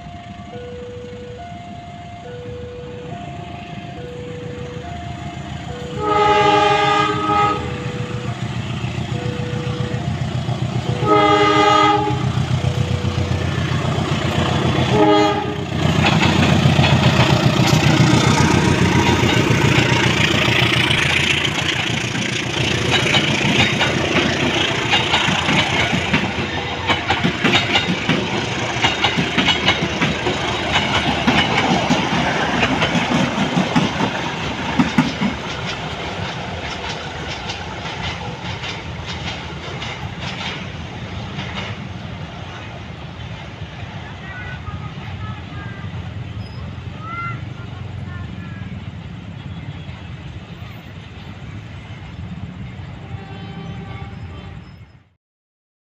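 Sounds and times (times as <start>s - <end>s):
train engine running: 0.0s - 55.1s
wheels clattering over rail joints: 4.5s - 49.5s
locomotive horn blasts: 5.8s - 8.2s, 10.8s - 13.0s, 14.8s - 15.9s, 52.9s - 54.9s.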